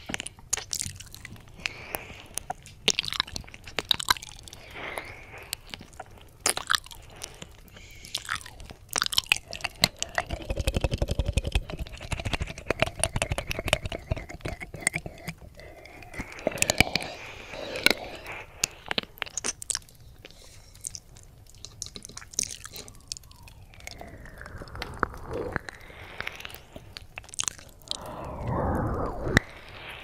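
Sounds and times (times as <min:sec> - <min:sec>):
wet mouth clicks and smacks: 0:00.0 - 0:29.6.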